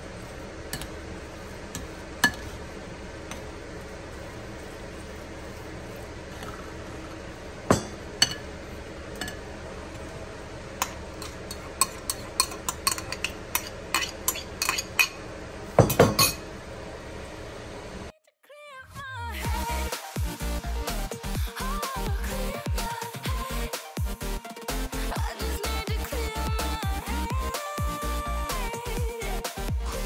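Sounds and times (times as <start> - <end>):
utensil clinking against bowl: 10.8 - 15.2, 15.8 - 16.4.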